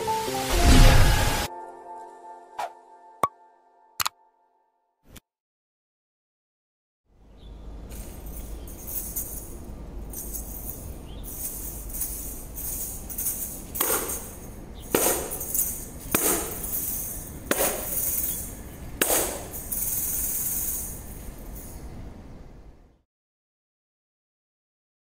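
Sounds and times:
tambourine jingles rattling: 0:07.8 - 0:22.0
hand striking tambourine: 0:07.9 - 0:21.8.

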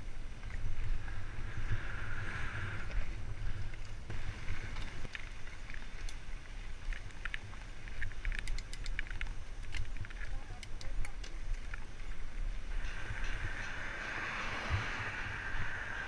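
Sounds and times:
wind rumble on microphone: 0:00.0 - 0:16.0
bicycle clicks and rattles: 0:04.7 - 0:14.2.

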